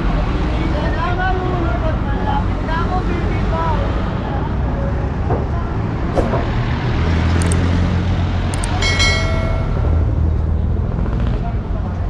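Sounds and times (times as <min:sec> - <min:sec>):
vehicle engines running: 0:00.0 - 0:12.0.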